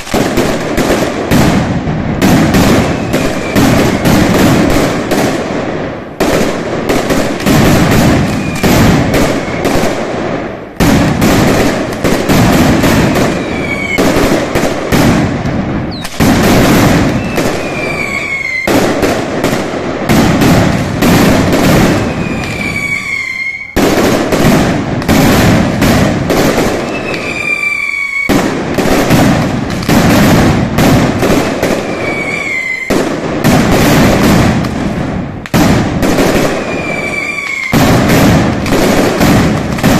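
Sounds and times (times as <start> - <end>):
firecrackers banging in volleys: 0.0 - 39.9
whistles falling in pitch: 17.2 - 18.7, 22.0 - 23.8, 26.9 - 28.3, 31.9 - 32.9, 36.6 - 37.7.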